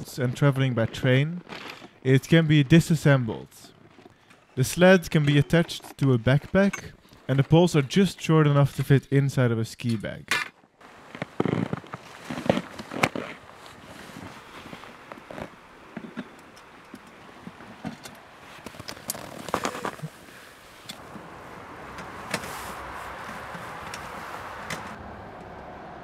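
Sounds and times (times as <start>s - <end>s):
gear rustling and knocking: 14.1s - 20.1s.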